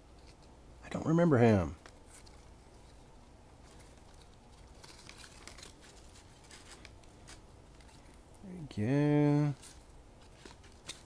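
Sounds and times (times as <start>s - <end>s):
cards rustling and clicking: 1.7s - 8.4s, 9.0s - 11.0s.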